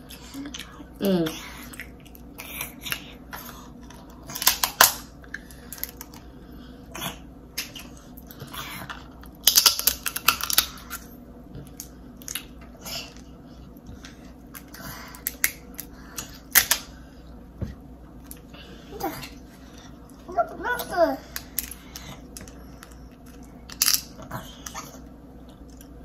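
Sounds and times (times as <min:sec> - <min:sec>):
crab shell cracking: 0:09.2 - 0:11.0, 0:14.5 - 0:16.9, 0:21.4 - 0:24.2.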